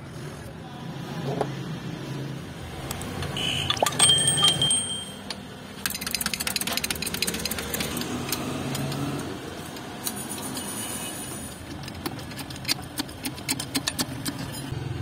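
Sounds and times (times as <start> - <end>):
steel parts clinking: 2.8 - 8.4.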